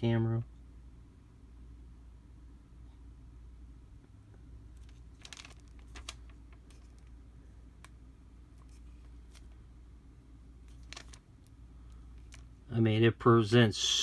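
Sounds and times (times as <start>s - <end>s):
low steady hum: 0.0s - 14.0s
handling clicks and rustles: 4.7s - 9.6s, 10.6s - 12.6s.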